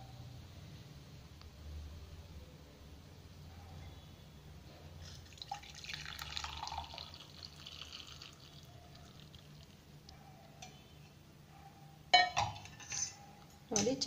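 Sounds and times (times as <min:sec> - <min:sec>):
liquid trickling and dripping: 0:05.0 - 0:10.2
liquid pouring and splashing: 0:05.1 - 0:09.9
steel utensils clanking: 0:12.2 - 0:14.0.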